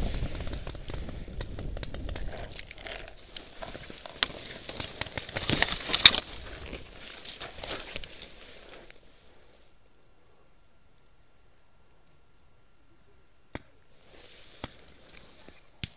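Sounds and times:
twigs and leaves rustling: 0.0 - 9.4.

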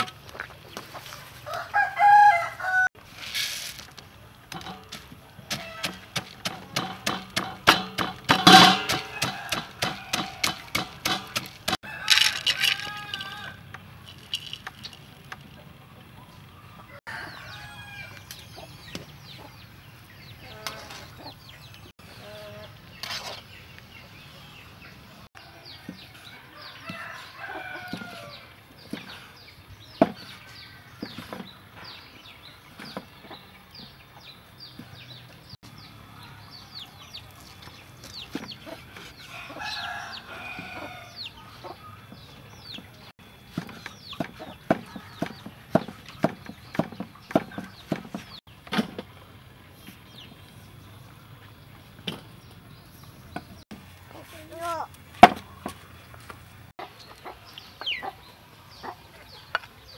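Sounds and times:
cleaver chopping on wooden board: 5.5 - 11.8
chickens clucking: 18.3 - 24.1, 25.5 - 35.5, 36.5 - 48.4, 56.8 - 59.9.

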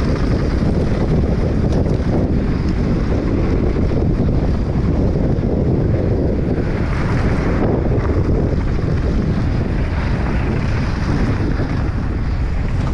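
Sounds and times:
tyres rumbling on dirt: 0.0 - 12.9
wind buffeting microphone: 0.0 - 12.9.

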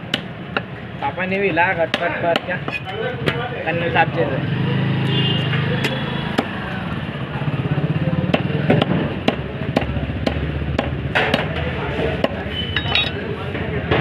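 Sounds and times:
knife chopping fish on wood: 8.3 - 11.6.

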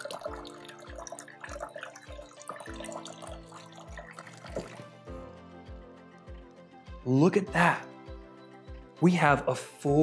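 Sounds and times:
water trickling into a glass: 0.0 - 5.1
background music with steady beat: 0.1 - 10.0.

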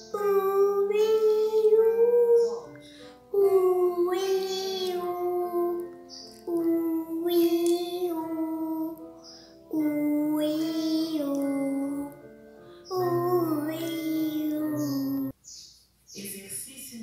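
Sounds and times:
girl singing vocal warm-up: 0.0 - 15.4
short breaths: 2.8 - 3.3.

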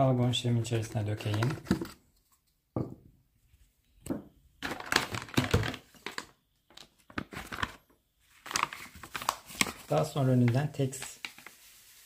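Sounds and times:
plastic containers crinkling: 0.7 - 2.0, 4.6 - 12.0.

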